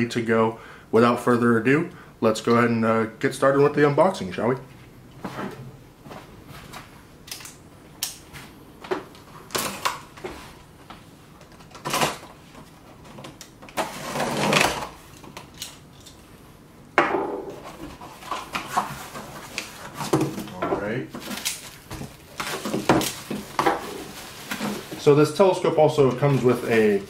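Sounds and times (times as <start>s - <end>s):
cardboard flaps rustling: 17.6s - 25.4s.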